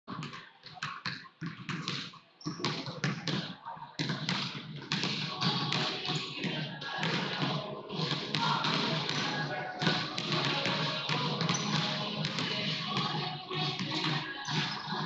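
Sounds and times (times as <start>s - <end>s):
basketballs bouncing on hardwood: 0.1s - 15.0s.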